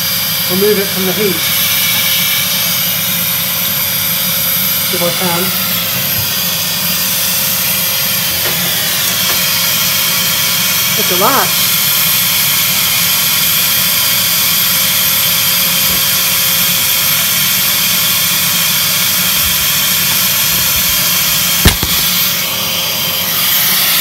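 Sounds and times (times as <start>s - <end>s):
vacuum cleaner running: 0.0s - 24.0s
sharp knock: 21.7s - 22.3s.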